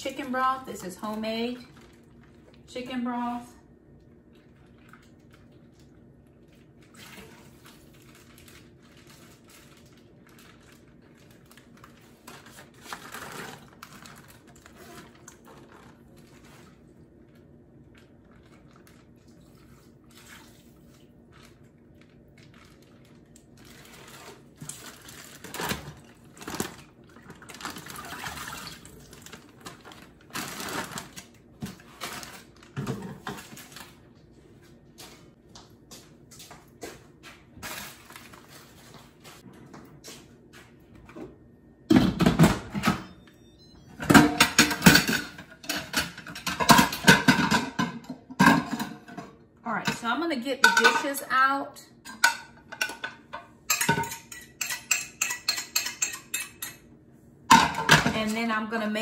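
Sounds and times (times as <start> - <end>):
plastic bags crinkling: 6.8 - 16.5, 21.3 - 34.0.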